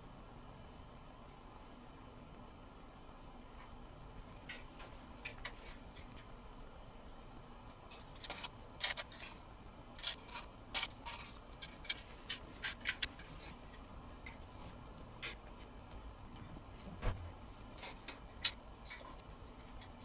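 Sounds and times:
bark chips clicking and crackling: 7.6s - 15.8s, 17.7s - 20.0s.

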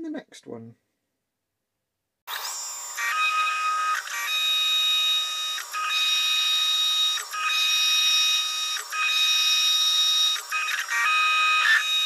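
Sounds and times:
lathe high-pitched whine: 2.3s - 12.0s.

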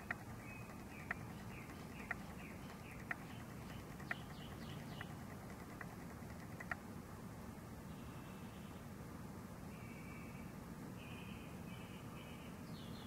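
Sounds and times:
sharp animal clicks: 0.0s - 6.8s
low steady background hum: 0.0s - 13.0s.

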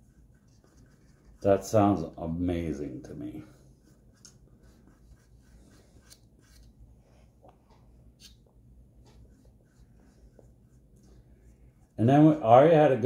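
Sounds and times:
paintbrush brushing on wood: 0.0s - 1.7s, 3.5s - 6.7s.

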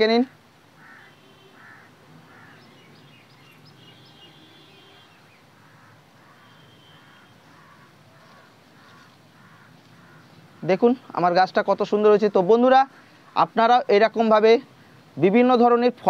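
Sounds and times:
faint bird calls: 0.8s - 11.2s
high bird chirps: 0.9s - 9.1s.

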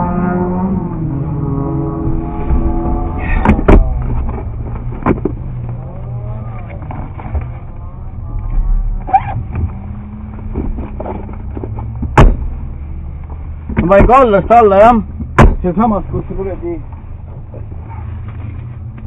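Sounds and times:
sharp knocks and clatters: 3.4s - 5.4s
short squeak: 9.0s - 9.5s.

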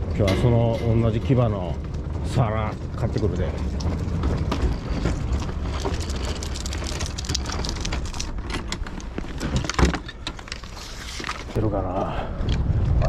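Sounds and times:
cart wheels rumbling on concrete: 0.0s - 13.0s
gear rattling and clattering: 0.0s - 13.0s.

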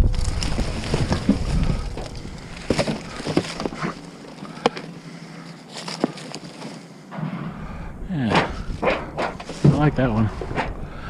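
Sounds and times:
junk knocking and clattering: 0.0s - 4.9s, 8.2s - 10.9s
low rumble: 0.0s - 5.0s, 7.1s - 11.0s.

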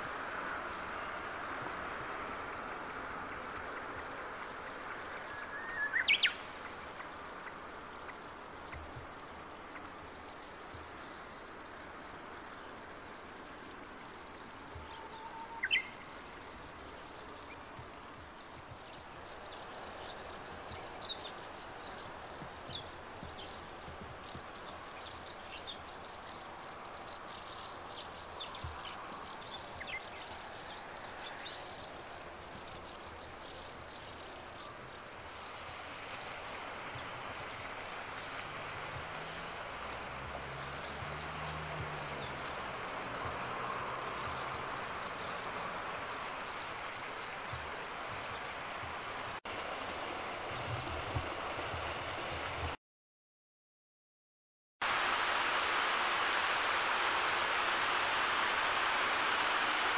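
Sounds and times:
small birds chirping: 3.5s - 49.4s
steady rushing background: 54.9s - 59.9s.

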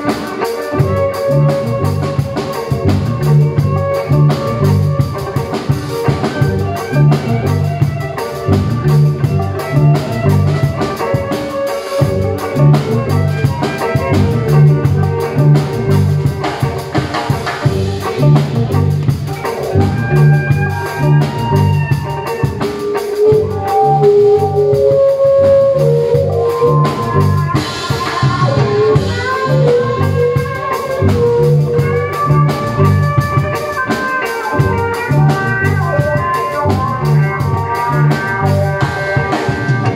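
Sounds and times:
amplified violin melody: 0.0s - 16.5s
drum kit beat: 0.0s - 39.9s.

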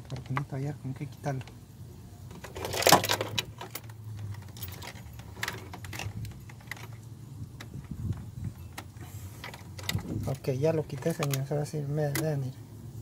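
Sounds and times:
small hard objects rattling: 2.3s - 11.5s.

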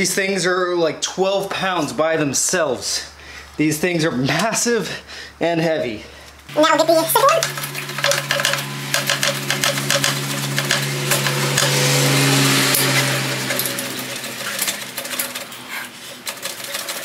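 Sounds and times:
metal clicking rattling and scraping: 7.3s - 12.1s, 12.7s - 17.0s.

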